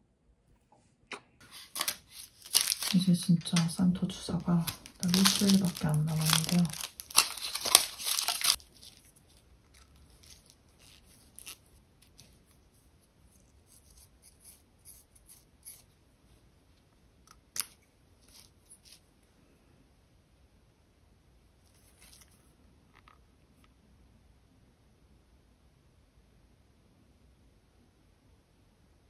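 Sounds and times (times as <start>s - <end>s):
swab packet tearing: 1.4s - 3.0s, 4.6s - 9.1s, 9.7s - 12.2s.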